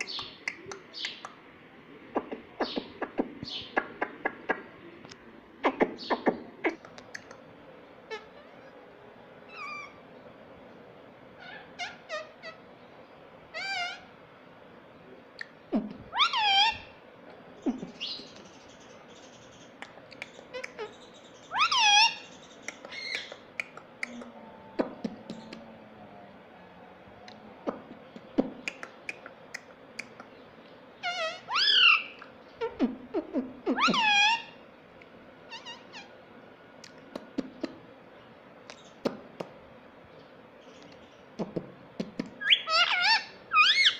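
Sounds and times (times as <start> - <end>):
parakeet chirping and calling: 8.1 - 8.8, 9.5 - 10.0, 11.4 - 12.7, 13.5 - 14.1, 16.1 - 17.0, 17.7 - 19.6, 20.3 - 23.5, 30.9 - 33.0, 33.7 - 34.6, 35.5 - 36.2, 42.4 - 43.9.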